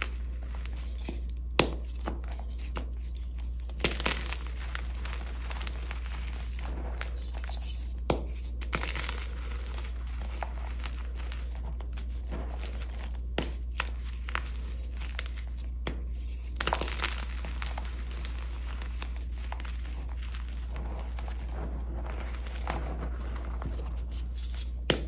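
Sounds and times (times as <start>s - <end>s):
sharp chalk cracks: 0.0s - 20.0s
chalk crunching and crackling: 0.0s - 25.0s.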